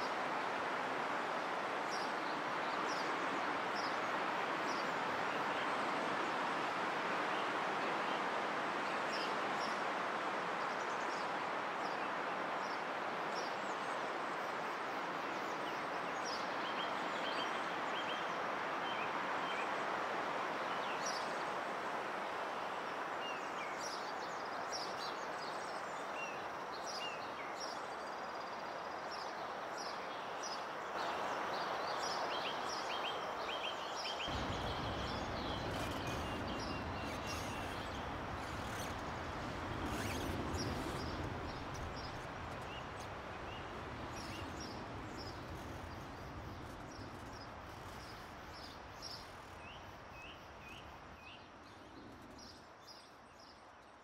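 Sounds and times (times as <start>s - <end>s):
small birds chirping: 32.0s - 51.8s.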